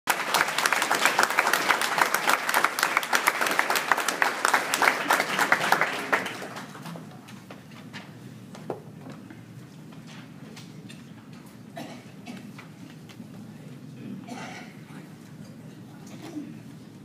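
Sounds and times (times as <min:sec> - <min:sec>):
audience applauding: 0:00.1 - 0:07.3.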